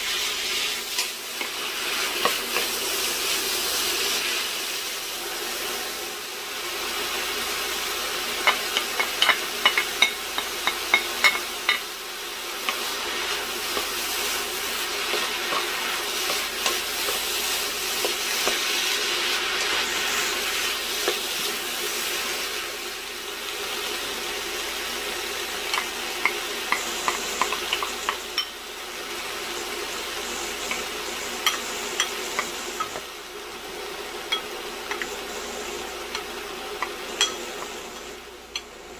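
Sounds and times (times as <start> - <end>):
meat and onion sizzling in pan: 0.0 - 38.9
wooden spoon tapping and scraping pan: 2.2 - 2.8, 8.4 - 11.9, 15.0 - 17.4, 18.0 - 18.7, 21.0 - 21.3, 25.7 - 28.6, 30.6 - 33.1, 34.3 - 35.2, 36.1 - 38.7.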